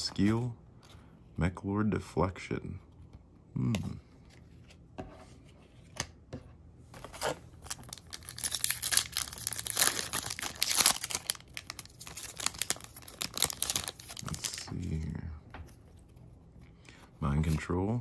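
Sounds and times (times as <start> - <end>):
foil wrapper crinkling and tearing: 7.0 - 14.7.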